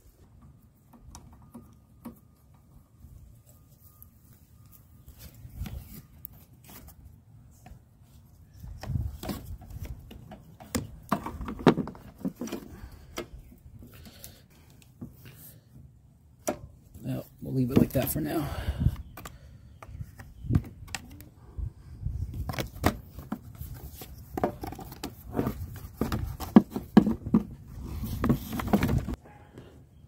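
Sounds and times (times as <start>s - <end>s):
mower parts clicking and knocking: 8.8s - 14.2s.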